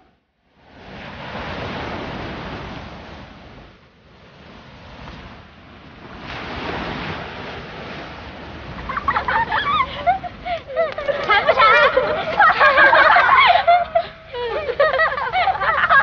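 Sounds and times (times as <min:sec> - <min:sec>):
sea surf washing onto beach: 0:00.6 - 0:16.0.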